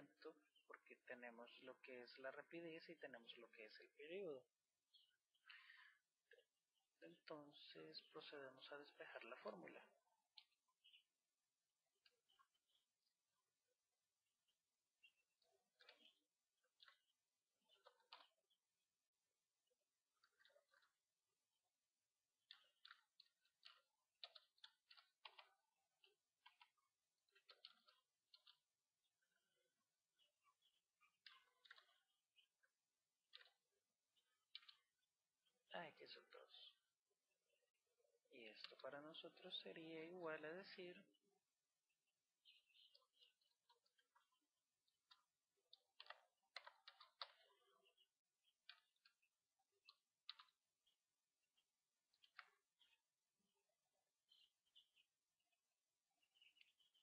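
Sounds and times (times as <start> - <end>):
keyboard typing: 17.7 - 18.6, 22.4 - 28.8, 31.2 - 32.1, 42.4 - 51.0
mouse clicks: 22.5 - 25.6, 45.1 - 48.0, 48.6 - 50.6.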